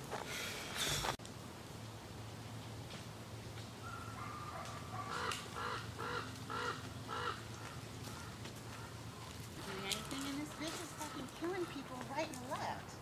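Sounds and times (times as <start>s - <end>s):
crow cawing: 3.8s - 12.0s.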